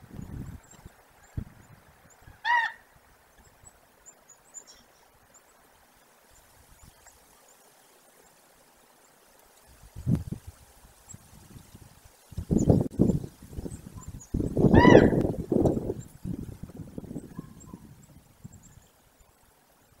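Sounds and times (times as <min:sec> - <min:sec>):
faint high bird chirps: 0:03.4 - 0:05.7, 0:17.1 - 0:19.4.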